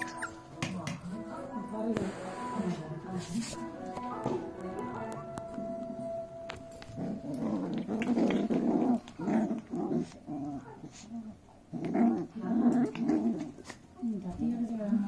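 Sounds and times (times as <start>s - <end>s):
puppies growling: 0.0s - 0.6s, 6.8s - 14.0s.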